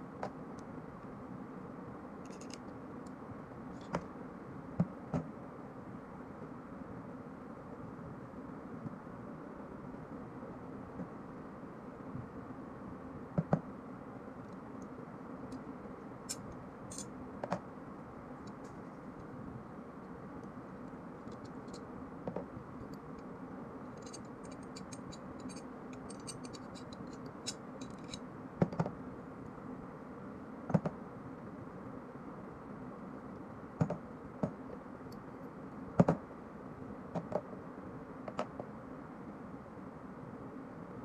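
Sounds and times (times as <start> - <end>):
steady low hum: 0.0 - 41.0
fine metallic clicks and scratching: 2.3 - 2.7, 16.3 - 17.1, 23.9 - 28.2.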